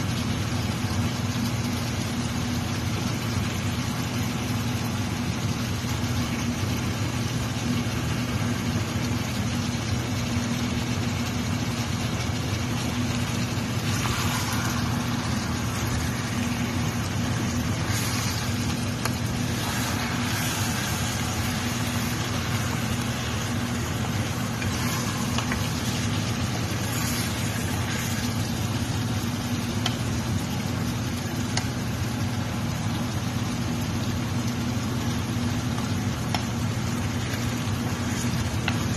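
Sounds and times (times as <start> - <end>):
chicken sizzling in a pot: 0.0 - 38.9
low hum: 10.6 - 31.6
wooden spoon stirring: 13.0 - 30.1, 37.1 - 38.9.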